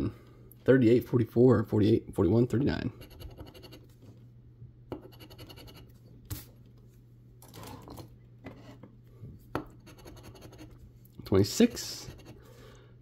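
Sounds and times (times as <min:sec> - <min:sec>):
low steady hum: 0:00.0 - 0:13.0
coin scratching lottery ticket: 0:09.8 - 0:10.7.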